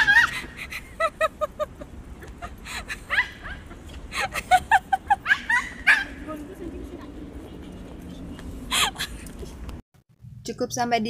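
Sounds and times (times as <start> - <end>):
dog yelping: 3.0 - 3.8, 5.1 - 6.3
small dog yapping: 5.3 - 6.2.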